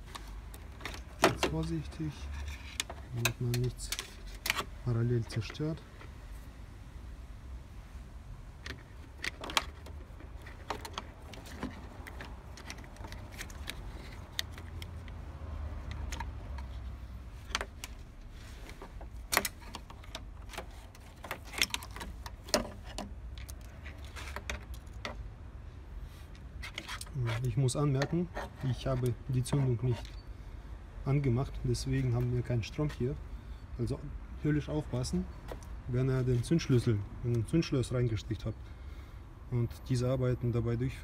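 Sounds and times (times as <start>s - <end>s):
plastic and wire rattling: 0.0s - 6.1s, 8.6s - 15.2s, 15.8s - 25.3s.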